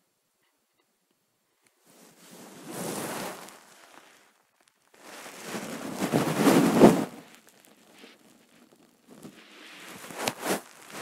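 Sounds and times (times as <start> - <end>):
bedding fabric rustling: 1.8 - 11.0.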